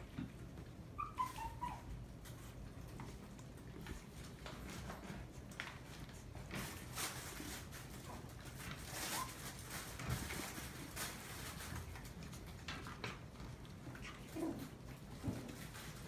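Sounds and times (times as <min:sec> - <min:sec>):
puppy paws rustling and tapping: 0:00.0 - 0:16.0
faint puppy squeak: 0:00.9 - 0:02.0.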